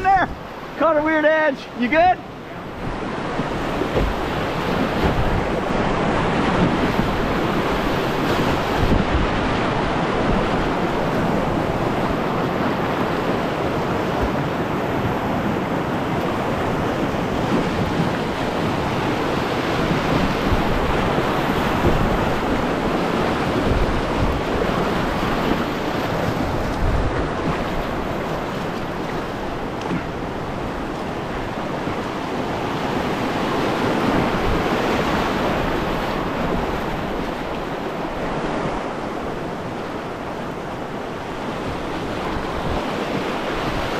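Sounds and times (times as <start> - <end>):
whitewater rushing over rocks: 0.0 - 43.9.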